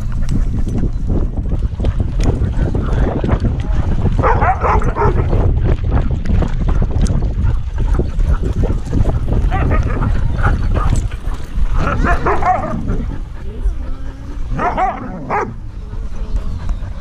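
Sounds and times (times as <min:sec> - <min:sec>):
knocks and jostling from stride: 0:00.0 - 0:13.4
wind buffeting and rumble: 0:00.0 - 0:17.0.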